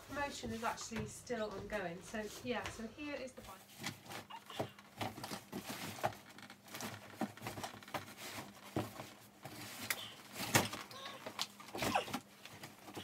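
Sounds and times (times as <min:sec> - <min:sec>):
cardboard scraping and rustling: 0:03.3 - 0:13.0.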